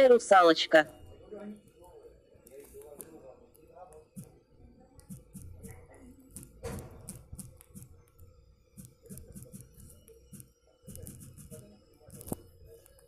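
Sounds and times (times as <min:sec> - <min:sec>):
typing on touchscreen keyboard: 0:08.8 - 0:12.4.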